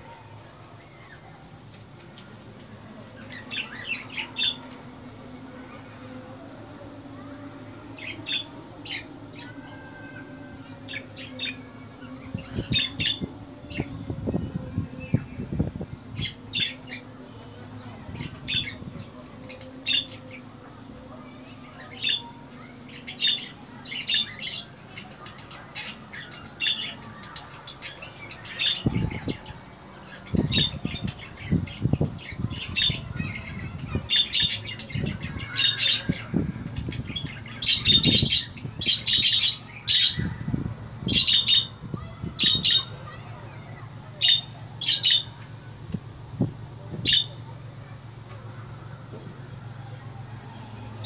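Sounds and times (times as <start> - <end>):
budgerigars chirping and squawking: 3.2 - 4.8, 8.0 - 14.0, 16.1 - 17.2, 17.9 - 20.4, 21.4 - 45.5, 46.9 - 47.5.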